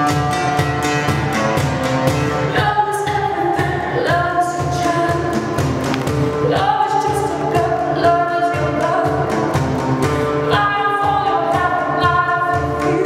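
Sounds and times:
acoustic guitar: 0.0 - 13.0
cajon beat: 0.0 - 13.0
woman singing: 2.4 - 9.7, 10.3 - 13.0.

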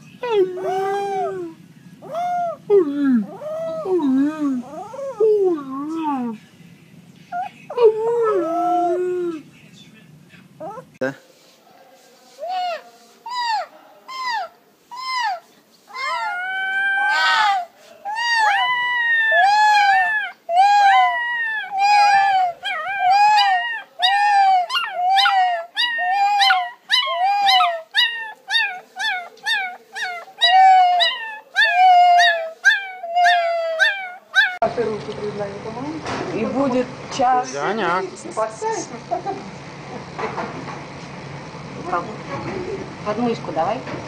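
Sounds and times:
puppy howling: 0.2 - 6.4, 7.3 - 9.4, 12.4 - 34.6.

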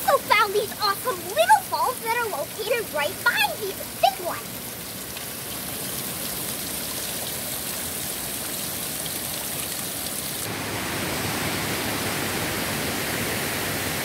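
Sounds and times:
river water rushing over rock: 0.0 - 8.4, 10.2 - 14.0
water dripping off rock: 0.0 - 10.5.

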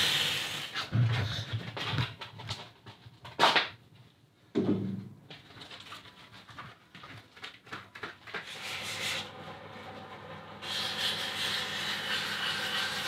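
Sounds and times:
sandpaper hissing on spinning metal: 10.6 - 13.0.

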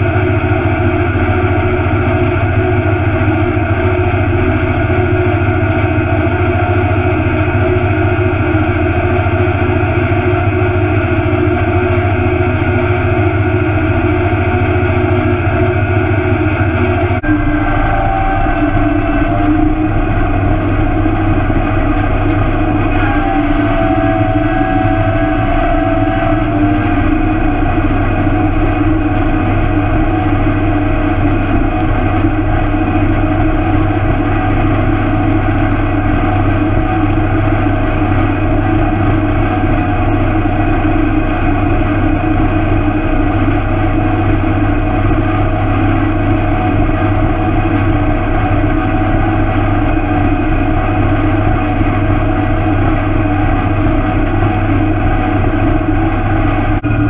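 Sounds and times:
tractor engine droning: 0.0 - 57.0.

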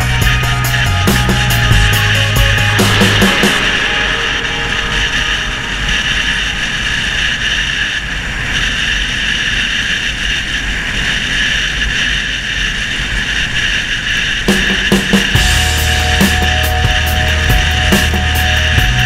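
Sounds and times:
low rumble: 0.0 - 8.8, 14.5 - 19.0
motorcycle road noise: 0.0 - 19.0
wind rush: 0.0 - 19.0.

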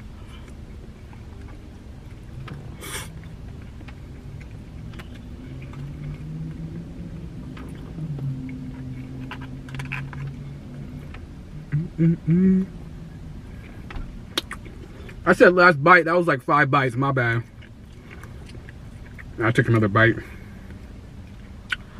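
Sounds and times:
low hum shifting in pitch: 0.0 - 15.2
low steady rumble: 0.0 - 21.9
chewing: 0.2 - 6.7, 7.5 - 11.8, 13.5 - 15.2, 17.4 - 19.4.

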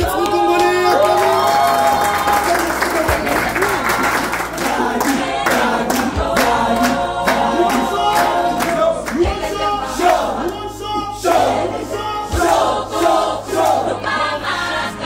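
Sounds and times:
hand clapping: 0.0 - 9.3
group singing together: 0.0 - 15.0.

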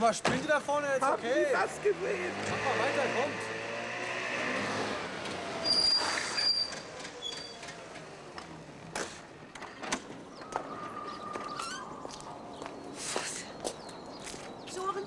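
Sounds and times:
car on cobblestones: 0.0 - 15.0
high thin brake squeal: 5.6 - 7.6.

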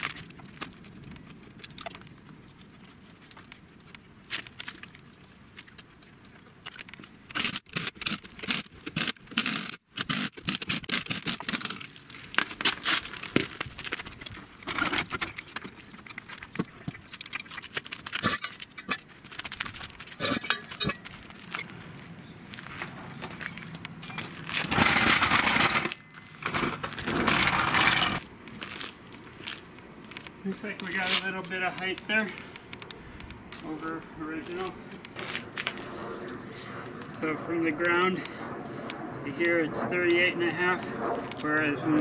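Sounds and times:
lug nuts clinking: 11.4 - 13.8, 24.1 - 28.2
metallic clatter: 24.0 - 28.2
impact wrench bursts: 24.7 - 28.2.

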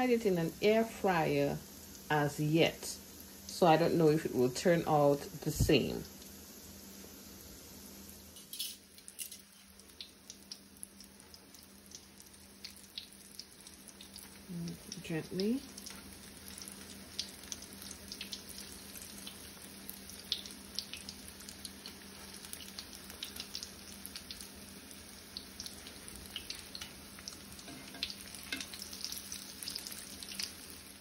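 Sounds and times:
croquettes sizzling in hot oil: 0.0 - 31.0
oil crackling and popping: 8.8 - 31.0.

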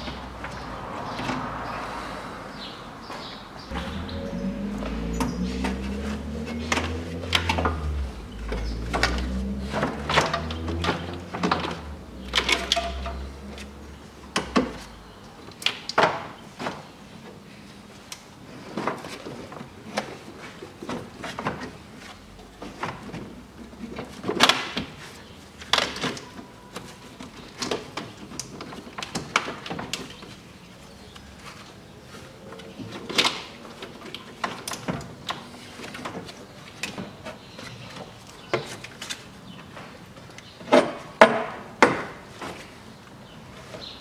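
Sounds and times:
low hum: 3.7 - 10.4.

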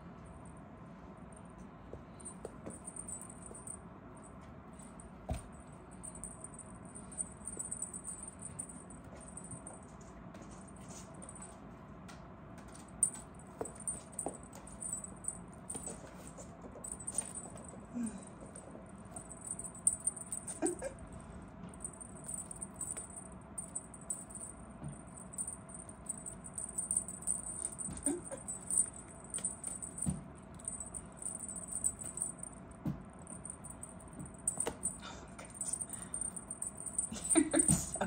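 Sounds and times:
small jingle bell jingling: 2.1 - 11.6, 12.6 - 38.0
paws tapping on floor: 12.1 - 15.0.

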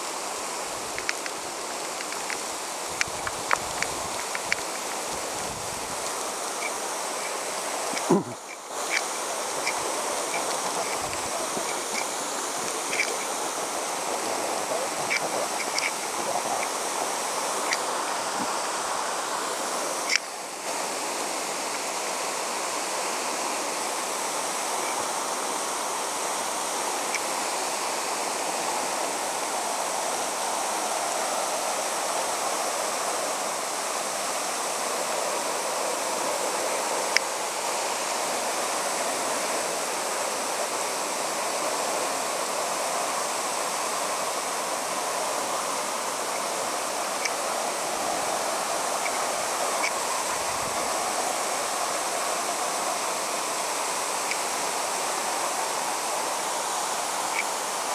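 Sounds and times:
water rushing down rock: 0.0 - 57.9
faint clicks: 0.9 - 5.0, 6.0 - 13.3, 14.8 - 16.7.

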